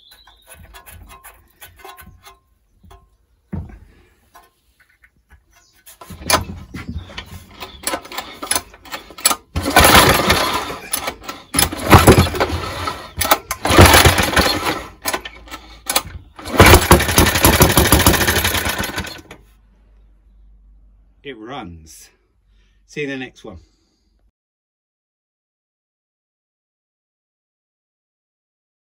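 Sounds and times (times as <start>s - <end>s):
lawnmower engine running in bursts: 6.0s - 19.4s.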